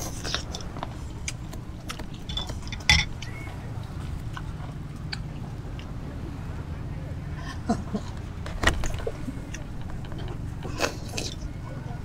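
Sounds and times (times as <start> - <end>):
biting and chewing: 0.0 - 6.0, 8.1 - 11.6
steady low hum: 0.0 - 12.0.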